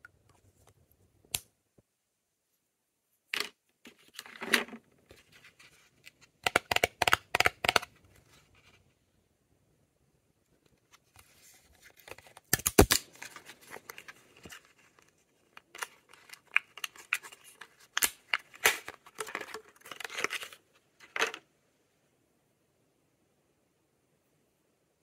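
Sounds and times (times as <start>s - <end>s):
packaging clicks and snaps: 6.4s - 7.9s, 12.0s - 14.7s, 15.6s - 20.6s
packaging crinkling and ripping: 11.8s - 14.7s, 15.6s - 20.6s.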